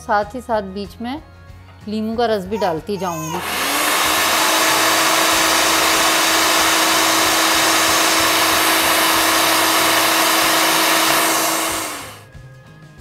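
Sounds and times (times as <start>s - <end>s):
food processor motor whirring: 3.2s - 12.3s.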